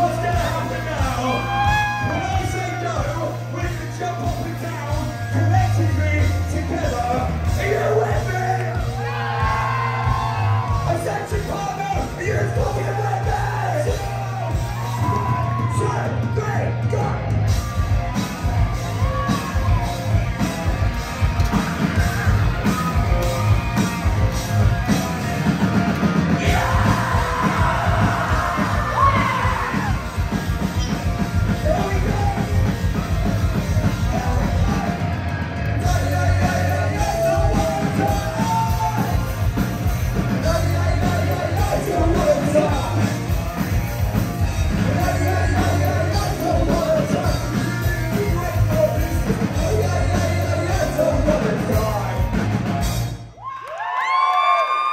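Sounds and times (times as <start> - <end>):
singer shouting vocals: 0.0 - 17.3, 26.3 - 30.0, 31.5 - 32.7, 34.0 - 35.1, 35.8 - 39.3, 44.8 - 52.3
live rock band playing: 0.0 - 53.4.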